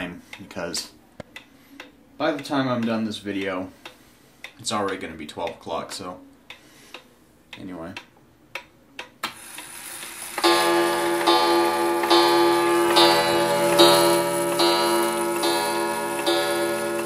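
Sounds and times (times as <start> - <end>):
clock gong striking: 10.4 - 17.0.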